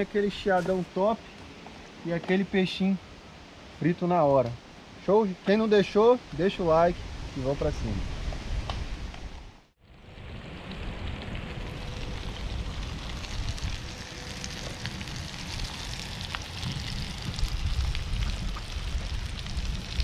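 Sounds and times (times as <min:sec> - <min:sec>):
fish frying in hot oil: 0:10.9 - 0:20.0.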